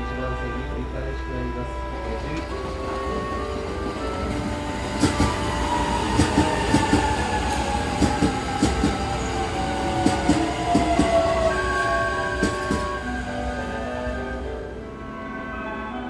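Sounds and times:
train motor whine: 0.0s - 15.2s
train wheels clacking over rail joints: 2.3s - 11.6s, 12.3s - 13.0s.

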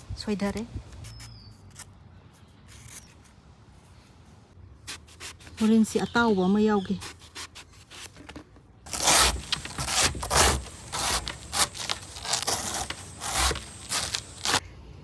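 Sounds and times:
scraping and tearing food: 8.9s - 14.6s.

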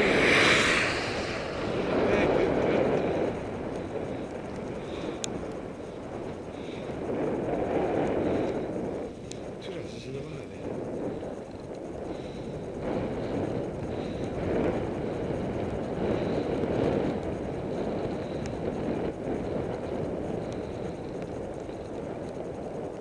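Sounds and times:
wind rushing on microphone: 0.0s - 23.0s.

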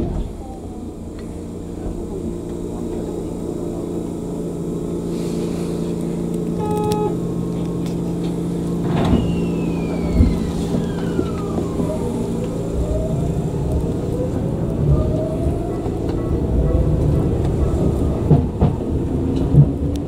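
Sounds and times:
electric train hum: 0.0s - 20.0s
high whine falling in pitch: 8.4s - 17.4s.

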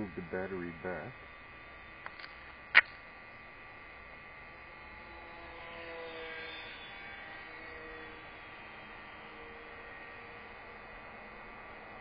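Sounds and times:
model plane electric motor whine: 0.0s - 12.0s
steady electrical hum: 0.0s - 12.0s
sharp click: 2.0s - 3.0s.

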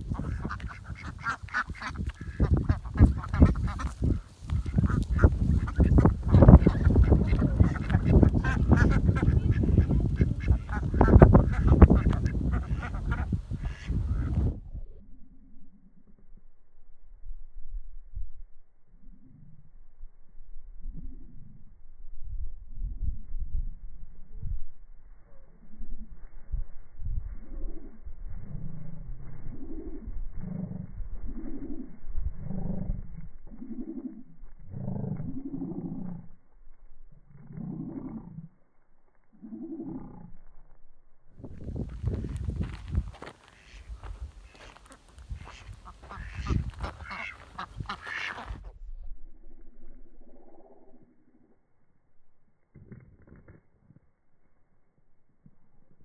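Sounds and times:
ducks quacking: 0.0s - 14.6s, 43.2s - 48.7s
heavy low rumble: 0.0s - 51.6s
duck giving short low calls: 43.5s - 48.6s.

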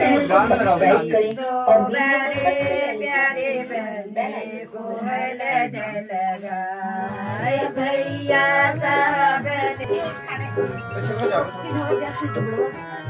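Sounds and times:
woman singing a melody: 1.1s - 10.8s.

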